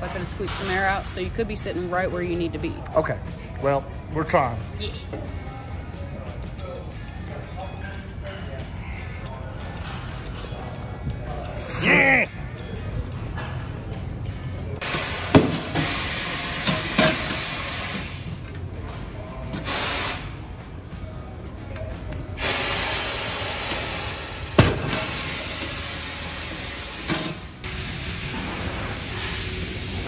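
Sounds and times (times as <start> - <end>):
air hissing out of tire: 14.8 - 18.4, 19.6 - 20.4, 22.4 - 30.0.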